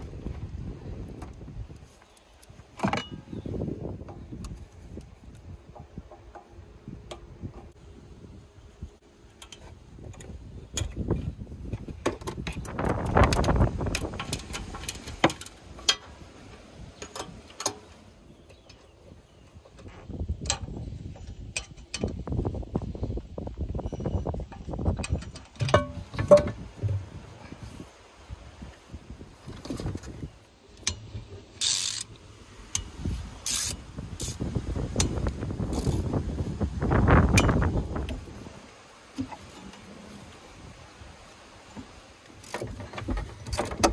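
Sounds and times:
rattling and scraping: 19.6s - 27.8s
hand ratchet clicking: 31.6s - 32.2s, 33.5s - 34.4s.

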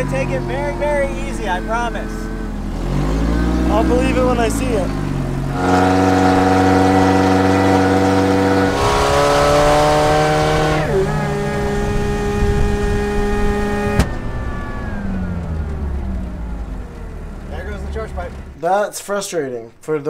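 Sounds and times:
supercharger whine: 0.0s - 18.6s
car engine pulling: 0.0s - 18.9s
sharp pop: 13.9s - 14.3s.

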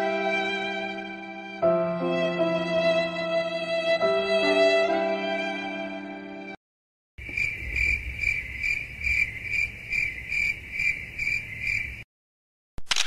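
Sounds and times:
sad violin chord: 0.0s - 6.6s
crickets chirping: 7.2s - 12.0s.

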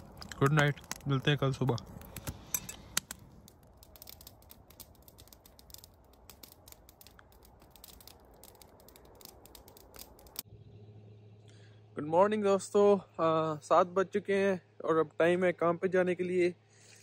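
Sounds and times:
faint crackling clicks: 0.0s - 10.4s.

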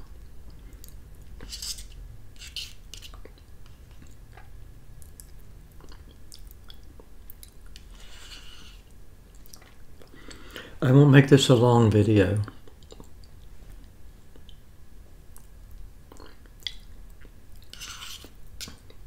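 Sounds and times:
chewing and lip smacking: 3.1s - 7.8s, 9.3s - 10.2s, 12.6s - 13.5s, 15.3s - 17.7s.

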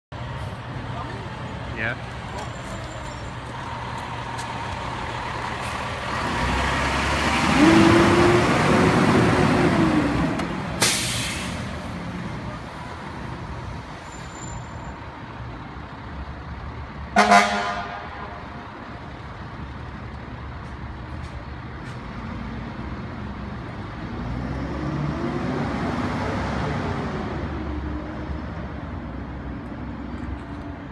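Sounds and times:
fire engine diesel engine revving: 4.5s - 12.4s
air brakes hiss: 10.8s - 11.7s
horn toot: 17.2s - 18.3s.

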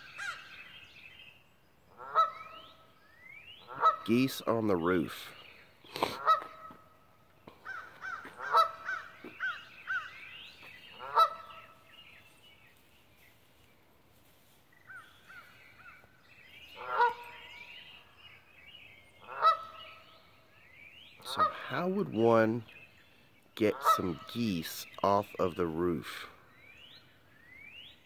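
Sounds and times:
geese honking: 1.9s - 2.8s, 3.6s - 5.3s, 6.0s - 6.9s, 7.6s - 10.2s, 10.9s - 11.8s, 16.7s - 17.6s, 19.2s - 20.0s, 21.2s - 22.2s, 23.6s - 24.9s.

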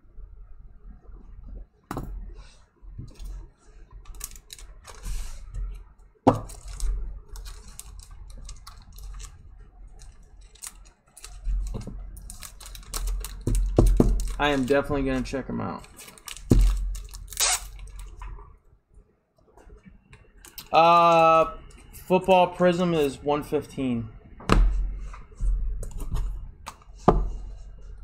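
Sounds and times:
cards and plastic cases handled: 3.0s - 18.3s.

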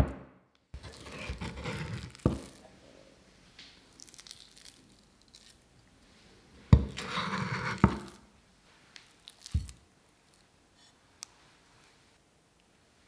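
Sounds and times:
cleaver scraping minced shrimp: 0.8s - 2.6s, 6.9s - 8.2s.

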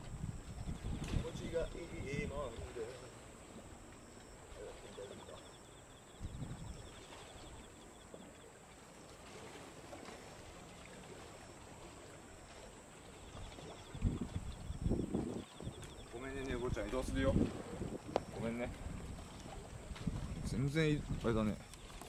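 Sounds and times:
low rumble and hiss: 0.0s - 6.9s.

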